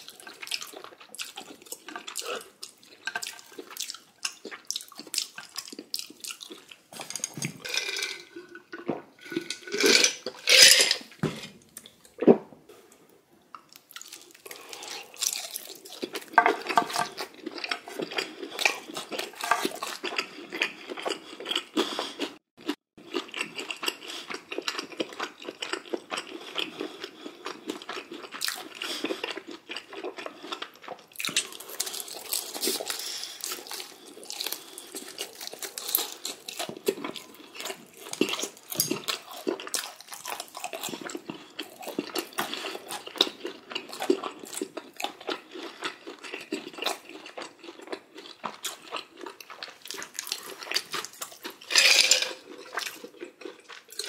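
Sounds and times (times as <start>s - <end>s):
crunchy chewing: 13.6s - 54.0s.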